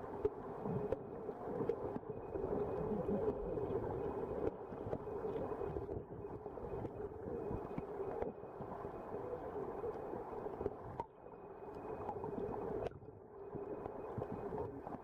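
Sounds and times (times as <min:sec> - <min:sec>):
faint clicks: 0:09.8 - 0:15.0.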